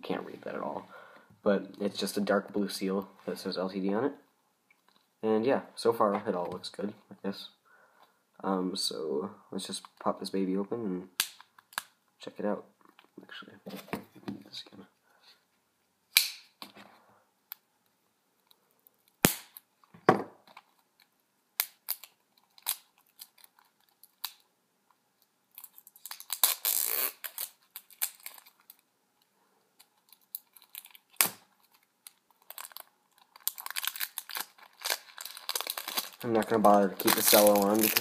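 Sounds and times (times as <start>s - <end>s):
cellophane crinkling: 25.5s - 28.9s, 29.8s - 38.0s.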